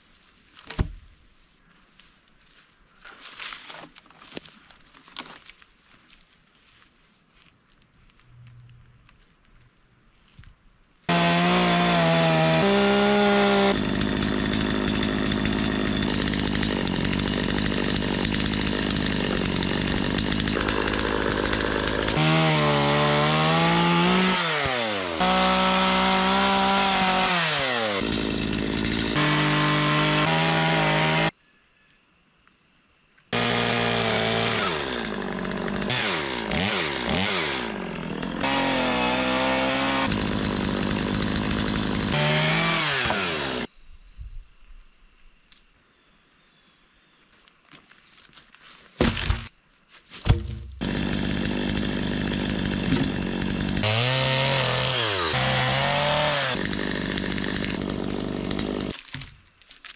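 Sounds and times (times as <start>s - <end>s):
chainsaw revving and cutting wood: 11.1s - 31.4s, 33.3s - 43.7s, 50.3s - 59.2s.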